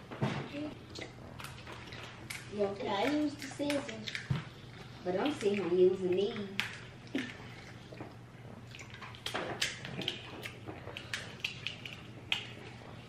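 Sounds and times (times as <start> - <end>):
wet chewing and smacking: 0.6 - 13.0
crab legs cracking: 1.0 - 5.7, 6.3 - 13.0.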